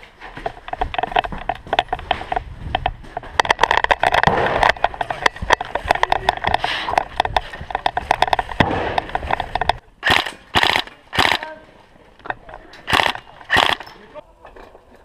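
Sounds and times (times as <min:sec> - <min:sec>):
running footsteps: 0:00.0 - 0:09.8.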